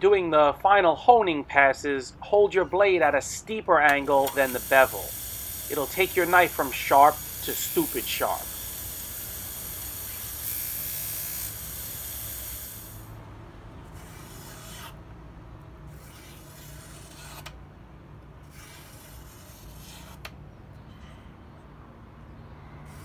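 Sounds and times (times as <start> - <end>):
blade hissing on honing wheel: 4.0 - 13.2
blade slicing paper: 15.9 - 17.6, 18.4 - 20.2.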